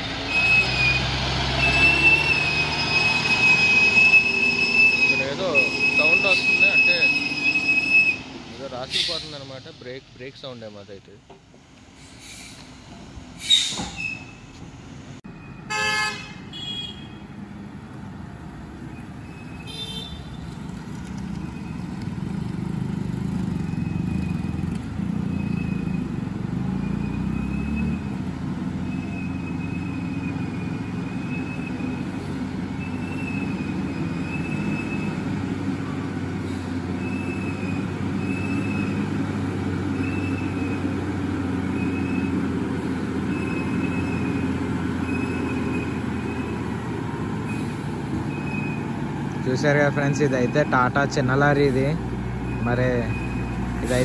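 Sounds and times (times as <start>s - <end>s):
lorry diesel engine under load: 0.0s - 54.0s
vehicle horn honking: 15.6s - 17.3s, 19.6s - 20.4s.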